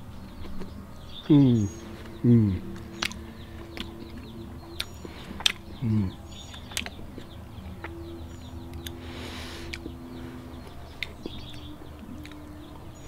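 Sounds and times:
steady low hum: 0:00.0 - 0:13.0
faint bird chirps: 0:00.2 - 0:13.0
held low tone: 0:01.2 - 0:13.0.

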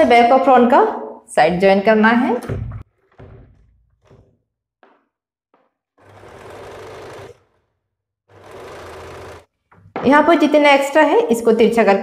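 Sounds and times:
sewing machine stitching: 0:05.6 - 0:09.8.

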